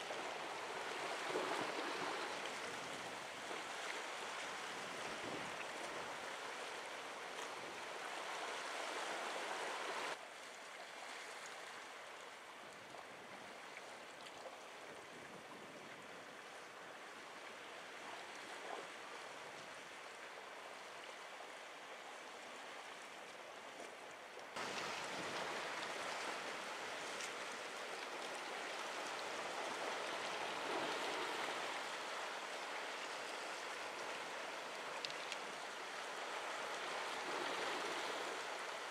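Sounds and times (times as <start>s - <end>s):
waves lapping against rocks: 22.5s - 38.9s.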